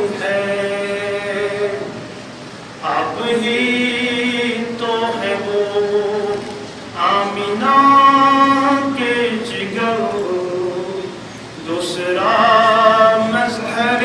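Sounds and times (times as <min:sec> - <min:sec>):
person singing unaccompanied: 0:02.8 - 0:14.0.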